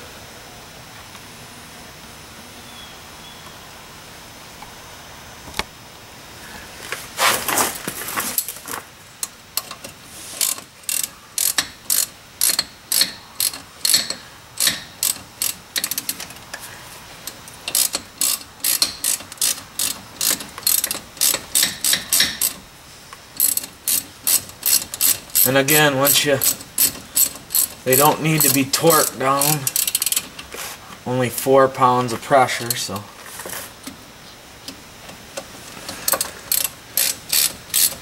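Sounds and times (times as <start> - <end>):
ratchet wrench clicking: 9.2 - 16.6, 17.2 - 22.6, 23.4 - 30.4, 36.0 - 38.0.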